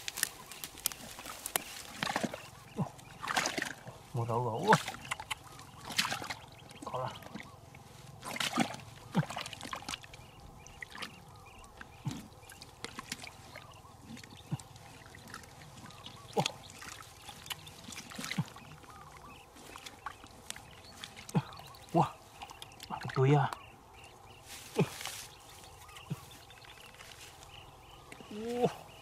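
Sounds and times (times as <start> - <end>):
mud and water squelching: 0.0 - 29.0.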